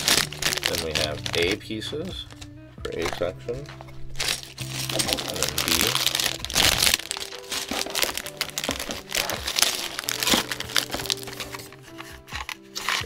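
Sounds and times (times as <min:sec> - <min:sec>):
plastic bags crinkling: 0:00.0 - 0:03.3, 0:04.0 - 0:13.0
soft background music: 0:00.0 - 0:13.0.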